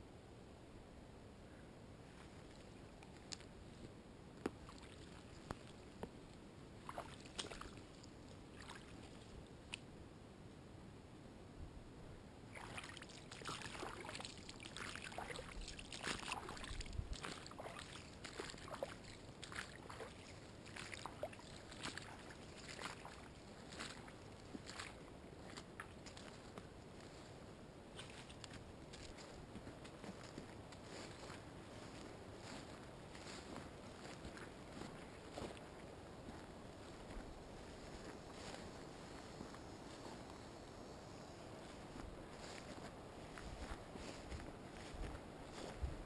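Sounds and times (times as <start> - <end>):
footsteps splashing through water: 4.5 - 5.8, 6.8 - 9.3, 12.5 - 26.7, 27.9 - 35.6.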